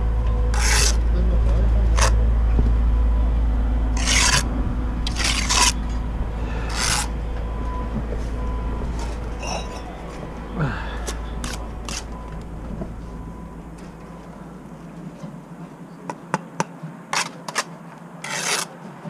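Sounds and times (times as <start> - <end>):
trowel scraping wet mortar: 0.5 - 1.0, 2.0 - 2.2, 4.0 - 5.8, 6.6 - 7.1, 17.1 - 18.8.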